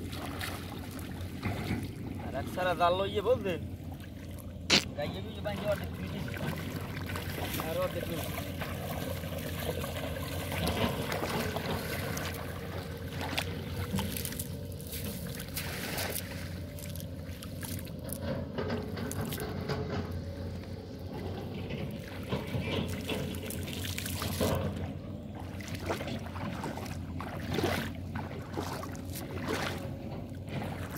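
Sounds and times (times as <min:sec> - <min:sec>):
small water splashes: 0:00.0 - 0:02.6, 0:03.3 - 0:30.9
water trickling and dripping from net: 0:06.3 - 0:19.6, 0:22.1 - 0:24.8.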